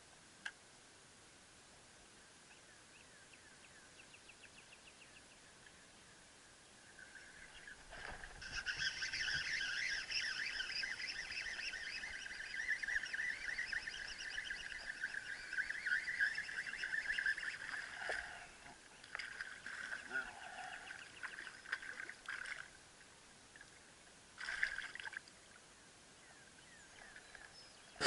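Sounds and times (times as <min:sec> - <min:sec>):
birds warbling chorus: 0:07.0 - 0:22.1.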